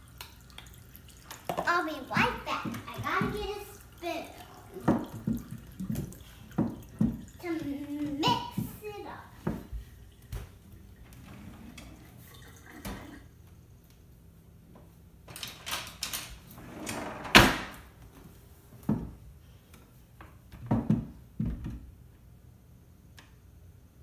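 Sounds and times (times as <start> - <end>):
drawer pulled open: 16.6 - 17.8
drawer shutting with knock: 16.6 - 17.8.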